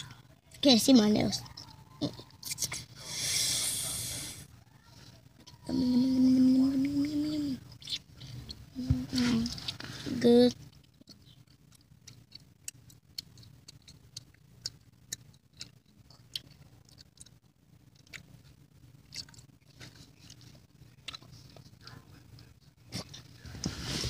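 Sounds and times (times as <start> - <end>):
low steady hum: 0.0 - 24.0
small clicks and wet mouth noises: 1.4 - 2.9, 6.7 - 9.9, 10.5 - 23.3.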